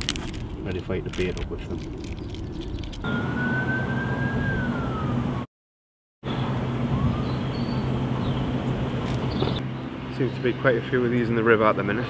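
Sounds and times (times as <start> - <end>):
siren wailing: 3.1 - 5.5, 6.5 - 8.6.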